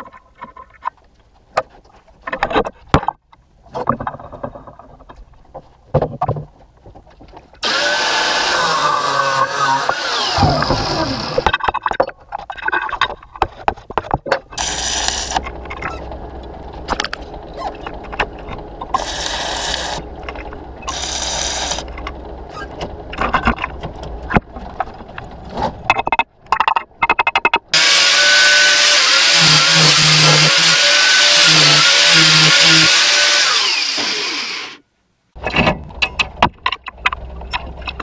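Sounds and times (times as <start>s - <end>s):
angle grinder cutting steel: 7.6s - 11.5s, 14.6s - 15.4s, 19.0s - 20.0s, 20.8s - 21.9s, 27.8s - 34.8s
arc welding crackle and sizzle: 14.6s - 16.0s, 18.9s - 20.0s, 20.8s - 21.9s.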